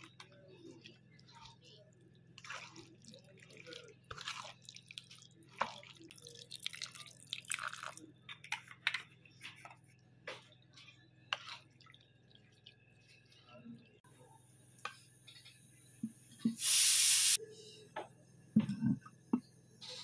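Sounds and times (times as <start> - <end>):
spatula scraping wet paste in pan: 10.8 - 11.7.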